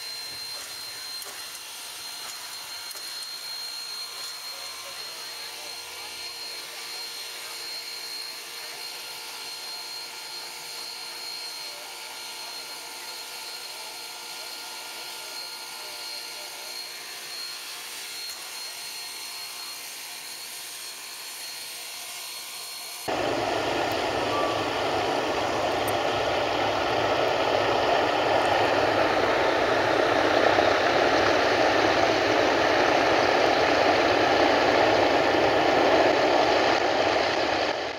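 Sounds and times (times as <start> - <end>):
aircraft engines roaring: 23.1 - 37.9
steam locomotive hissing: 23.1 - 37.9.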